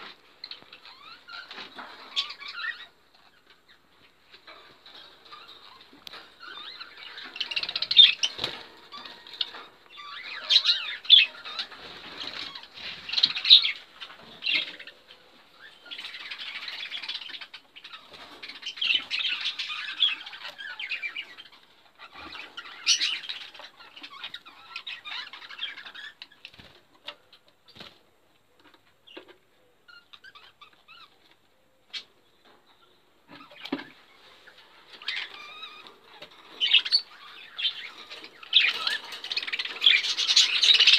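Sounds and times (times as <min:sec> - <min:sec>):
budgerigars chattering and chirping: 0:05.3 - 0:26.5, 0:34.5 - 0:40.9.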